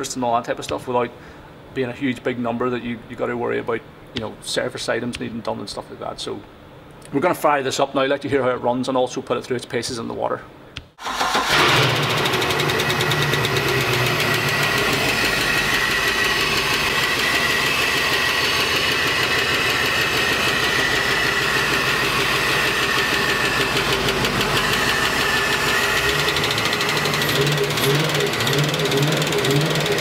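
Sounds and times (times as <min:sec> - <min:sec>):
boat engine idling: 0:11.5 - 0:30.0.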